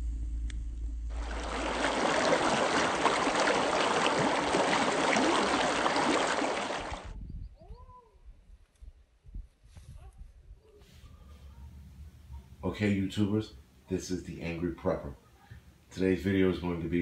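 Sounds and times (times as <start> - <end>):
campfire rumble and crackle: 1.1 - 7.0
stream rushing over rocks: 1.1 - 7.1.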